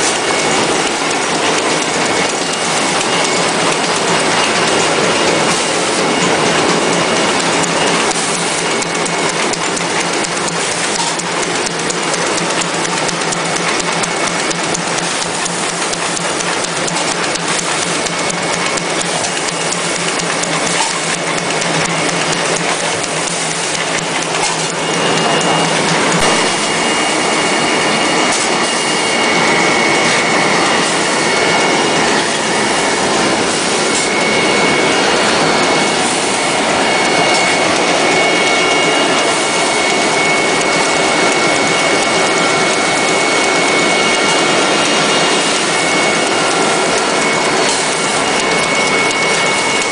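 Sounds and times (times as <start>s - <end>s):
high steady whine: 0.0s - 49.9s
machine clattering: 0.0s - 49.9s.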